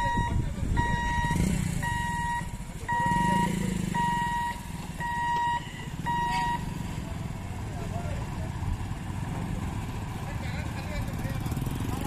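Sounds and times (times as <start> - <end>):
warning buzzer beeping: 0.0 - 6.7
motorcycle engines running: 0.0 - 12.0.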